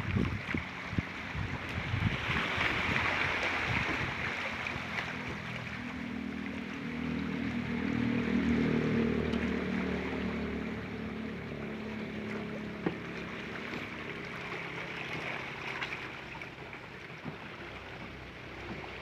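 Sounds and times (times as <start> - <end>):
sea water lapping among rocks: 0.0 - 19.0
low hum: 4.0 - 19.0.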